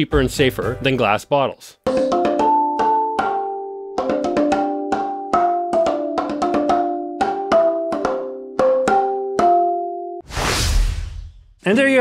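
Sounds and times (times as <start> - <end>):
mallets knocking plastic bottles: 2.0 - 9.6.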